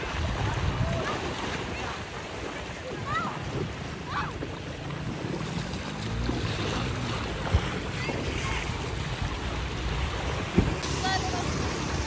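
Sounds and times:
wind on microphone: 0.0s - 2.4s
sea surf splashing: 0.0s - 12.0s.

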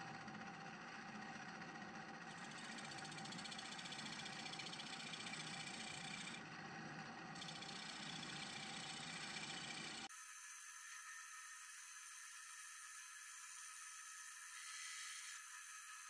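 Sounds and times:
wood lathe cutting: 0.3s - 10.1s.

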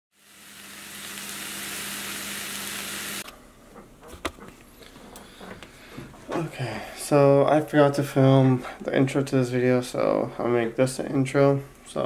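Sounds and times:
steady hiss: 0.2s - 3.3s.

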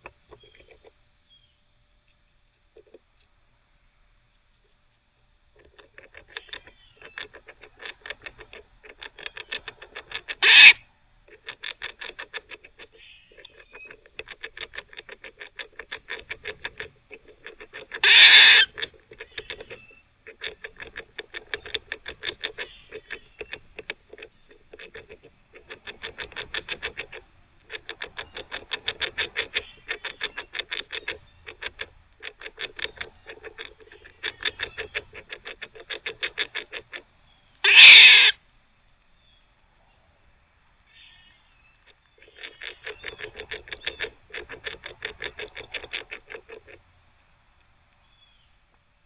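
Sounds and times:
squirrel gnawing: 0.0s - 1.5s, 2.1s - 48.9s
squirrel barking: 5.6s - 38.4s, 40.9s - 46.9s.

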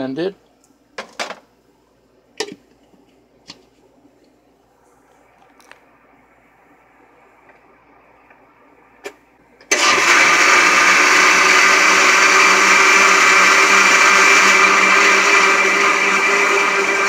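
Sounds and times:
blender motor running: 9.7s - 17.0s.

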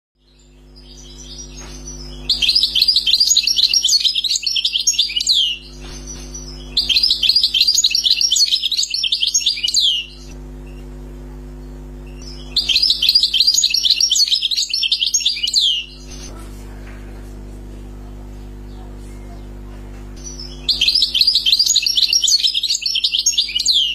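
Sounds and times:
goldfinch twittering song: 0.2s - 10.8s, 11.6s - 16.3s, 20.2s - 23.9s
steady low hum: 0.2s - 23.9s.

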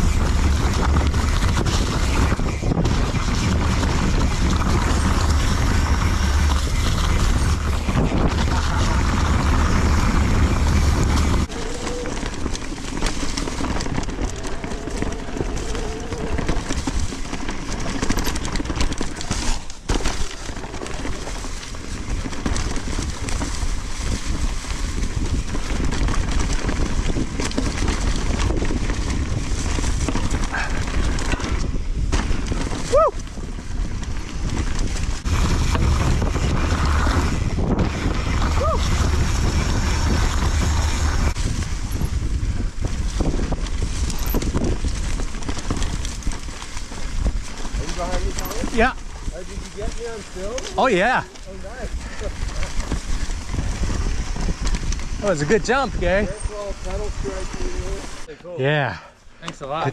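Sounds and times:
wind buffeting microphone: 0.0s - 19.6s, 21.2s - 58.4s
bike tyres rumbling over ground: 0.0s - 59.9s.

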